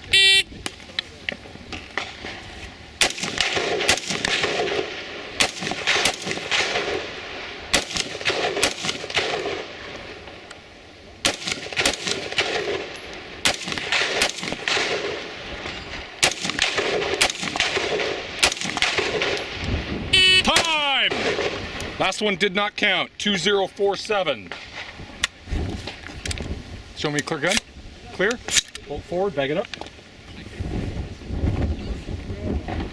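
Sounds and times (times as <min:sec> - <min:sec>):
rifle shots echoing: 0:03.0 - 0:10.2, 0:11.2 - 0:21.8.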